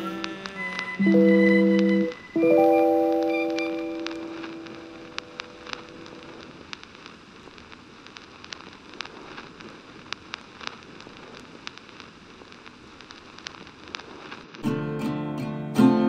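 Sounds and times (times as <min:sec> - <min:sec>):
held song notes: 0:00.0 - 0:06.4
sharp crackles and pops: 0:00.0 - 0:14.7
soft hiss: 0:00.0 - 0:16.0.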